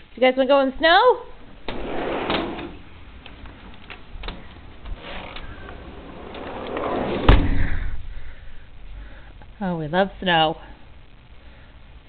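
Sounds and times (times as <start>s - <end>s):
heavy thump: 5.7s - 8.2s.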